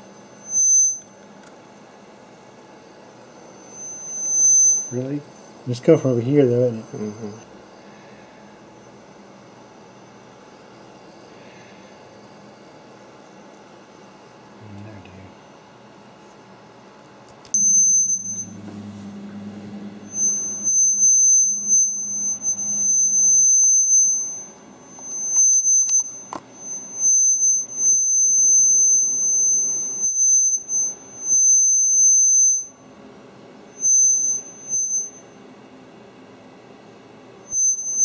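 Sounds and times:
high-pitched laptop squeal: 0.3s - 1.1s, 3.6s - 5.2s, 17.6s - 32.8s, 33.8s - 35.3s, 37.5s - 38.0s
low hum: 17.6s - 26.9s.

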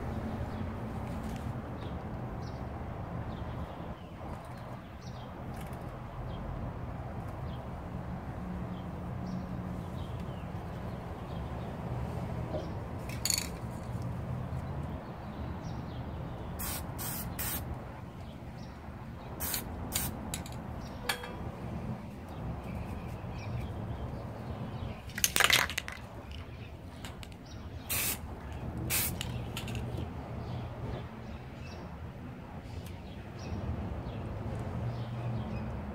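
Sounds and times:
steady low rumble: 0.0s - 1.2s
spray paint can hissing: 16.6s - 17.6s, 19.4s - 20.5s, 27.9s - 28.2s, 28.9s - 29.9s.

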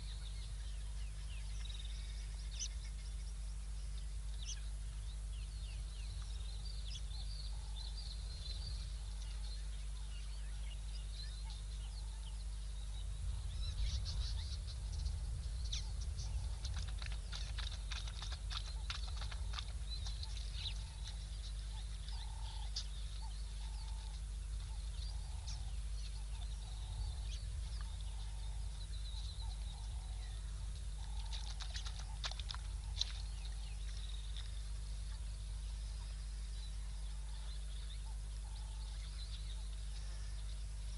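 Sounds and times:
birds chirping high: 0.0s - 40.9s
steady low hum: 0.0s - 40.9s.

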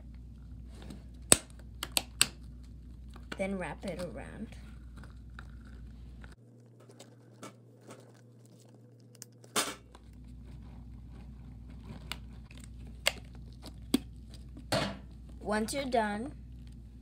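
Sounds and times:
balloon rubbing and crinkling: 9.9s - 15.4s.

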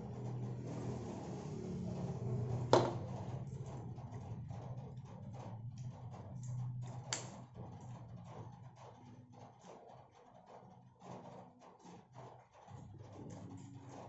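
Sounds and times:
plastic utensils scraping and tapping: 2.4s - 9.8s.

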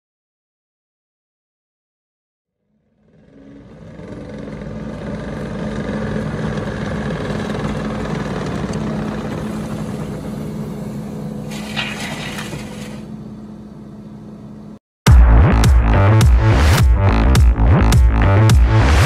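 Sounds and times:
diesel engine running: 2.7s - 19.0s
spades scraping into soil: 11.5s - 13.1s.

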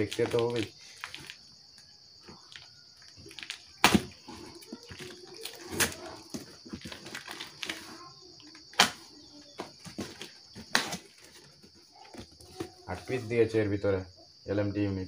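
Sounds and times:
cardboard rustling: 3.2s - 13.4s
packing tape ripping: 10.1s - 11.3s.

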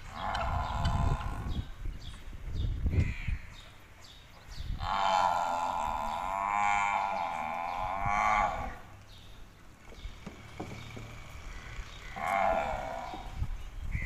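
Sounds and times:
cow mooing: 0.1s - 1.5s, 4.8s - 8.9s, 11.4s - 13.5s.

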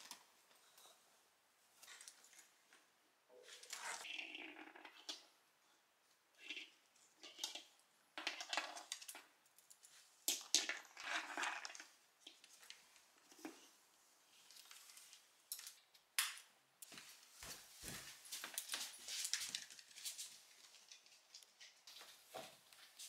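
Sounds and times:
nylon harness rustling and scraping: 16.9s - 23.0s.

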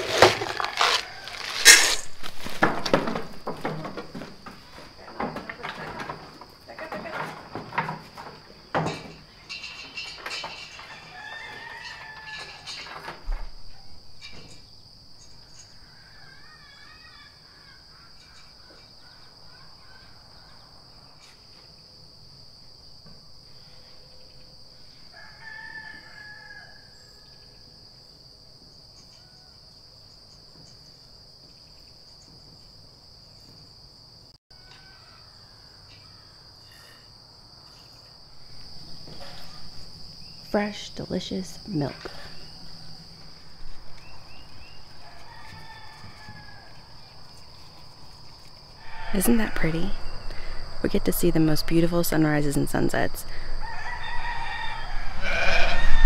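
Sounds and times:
insects droning: 0.0s - 56.0s
rooster crowing: 0.2s - 2.2s, 10.7s - 12.9s, 15.7s - 18.2s, 25.1s - 27.8s, 34.5s - 36.5s, 44.3s - 47.4s, 48.7s - 50.7s, 53.4s - 56.0s
hooves knocking on wooden stand: 2.4s - 9.2s.

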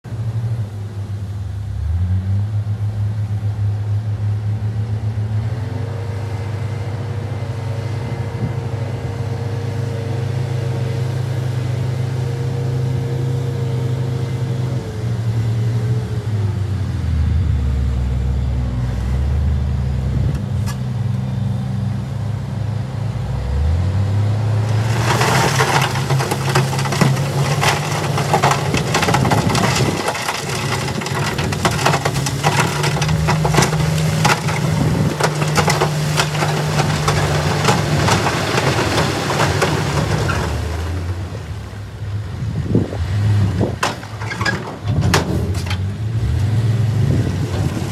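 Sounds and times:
dump truck engine running: 3.3s - 47.9s
crushed rock pouring and clattering: 24.6s - 41.6s, 43.6s - 45.9s.

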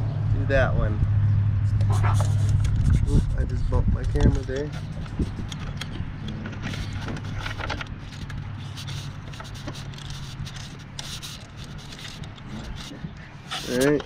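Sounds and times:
light metal scraping: 1.7s - 14.0s
metal clicks of bolt and nut: 5.4s - 6.7s.

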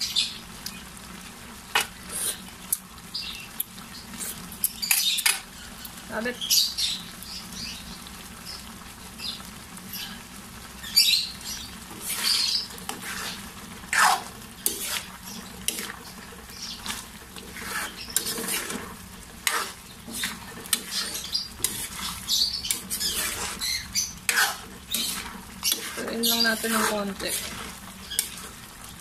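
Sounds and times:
spoon stirring stew in metal pan: 1.7s - 2.0s, 11.8s - 28.7s.

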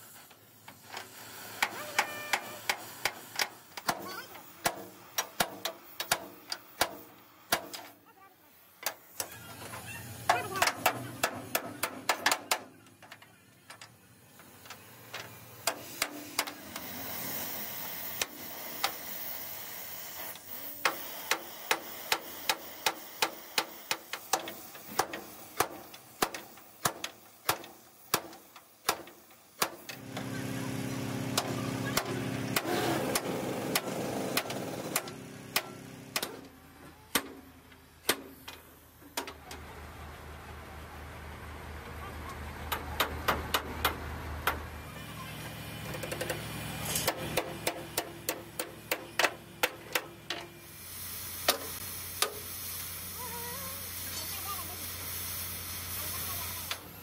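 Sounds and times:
hammering on metal: 10.3s - 12.8s, 47.1s - 50.5s
motor running steadily: 12.8s - 26.0s, 29.8s - 38.8s, 41.0s - 57.0s.

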